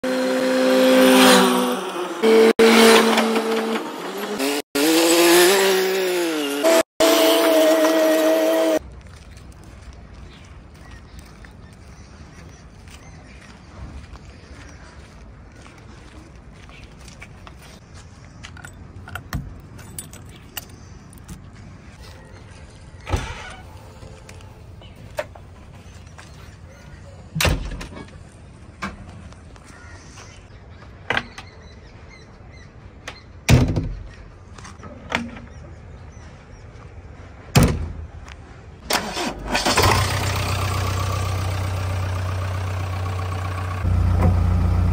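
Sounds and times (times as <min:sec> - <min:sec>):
engine revving: 0:00.0 - 0:08.8, 0:38.9 - 0:44.9.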